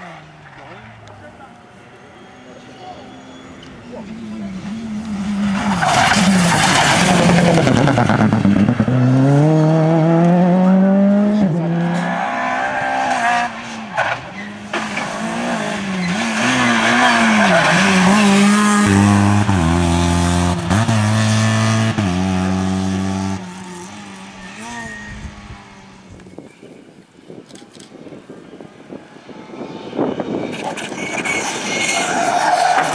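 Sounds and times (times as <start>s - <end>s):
rally car engines at full throttle: 0.0s - 32.9s
tyres squealing: 12.0s - 19.8s.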